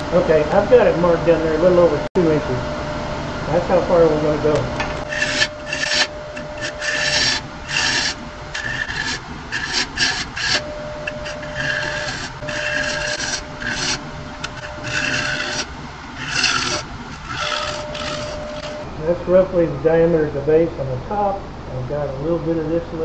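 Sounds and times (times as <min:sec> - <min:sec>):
lathe whine: 0:00.0 - 0:23.0
tool scraping spinning wood: 0:04.4 - 0:18.9.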